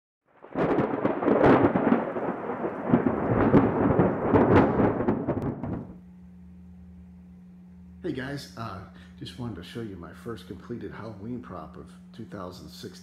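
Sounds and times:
thunder rumble: 0.3s - 6.0s
sharp thunder cracks: 0.4s - 6.0s.

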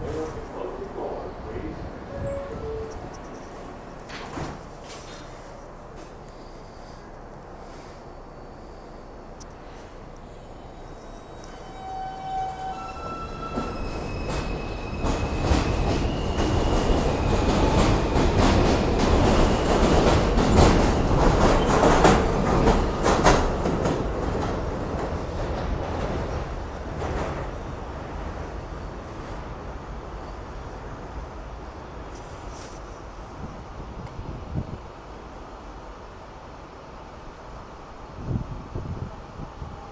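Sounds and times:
train wheels clattering over rail joints: 13.5s - 27.5s.

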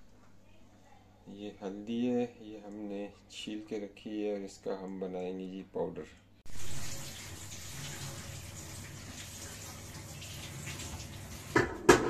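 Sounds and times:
running water rushing: 6.5s - 11.8s.

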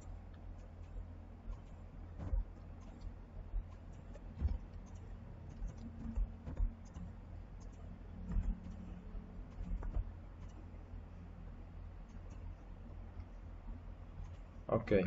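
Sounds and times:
keystrokes: 0.0s - 10.6s
computer mouse clicks: 0.0s - 11.0s, 11.9s - 13.4s, 14.2s - 14.5s
low steady hum: 0.0s - 15.0s.

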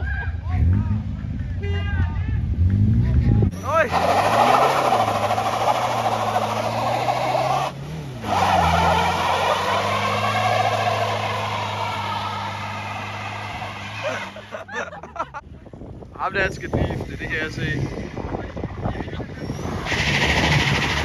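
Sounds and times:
car engine at high revs: 2.6s - 14.6s, 19.4s - 21.0s
tyres screeching: 3.5s - 14.8s, 18.8s - 21.0s.

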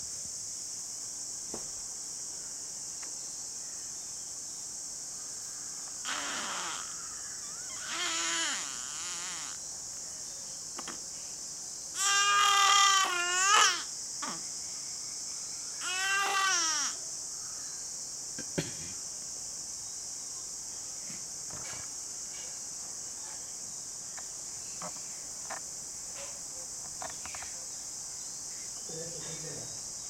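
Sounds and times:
infant whimpering and crying: 6.1s - 9.6s, 12.0s - 14.4s.

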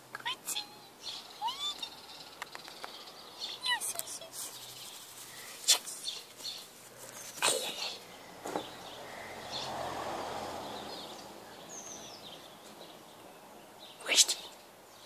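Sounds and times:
faint bird chirps: 0.1s - 9.7s
rustling: 3.9s - 8.8s
distant noise: 7.0s - 13.0s.

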